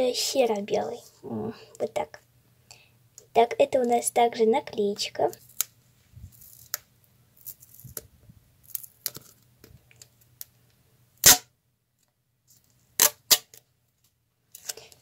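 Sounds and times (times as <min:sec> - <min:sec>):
sharp crack: 0:11.2 - 0:11.5, 0:13.0 - 0:13.5.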